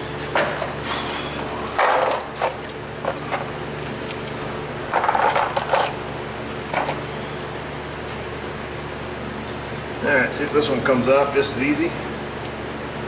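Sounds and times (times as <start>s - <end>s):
metal parts clinking and rattling: 1.6s - 2.6s, 4.9s - 6.0s.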